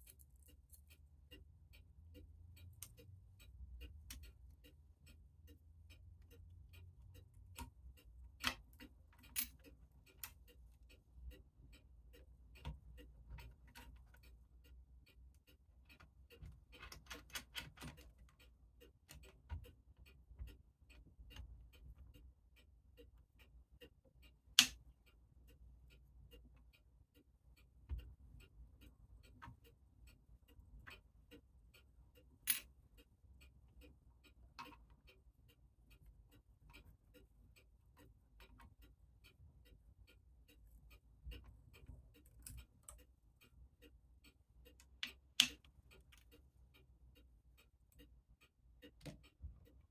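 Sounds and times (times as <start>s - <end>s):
metallic clicks and knocks of a tool: 0.0s - 1.4s, 7.2s - 10.6s, 15.9s - 18.4s, 24.5s - 24.9s, 32.3s - 32.8s, 44.7s - 46.4s, 48.8s - 49.8s
clocks ticking: 0.0s - 49.9s.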